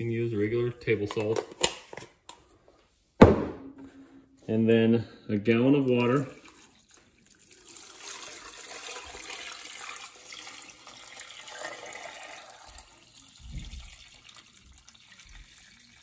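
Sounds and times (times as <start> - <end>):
water pouring into a pot: 5.9 - 16.0.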